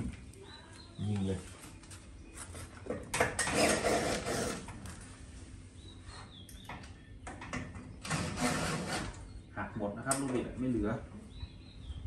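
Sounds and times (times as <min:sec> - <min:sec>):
cordless drill driving a screw: 0:08.0 - 0:09.2.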